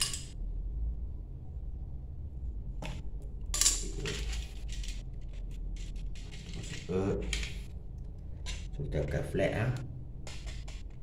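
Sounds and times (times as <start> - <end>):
low steady hum: 0.0 - 11.0
wires rustling and scraping: 2.8 - 11.0.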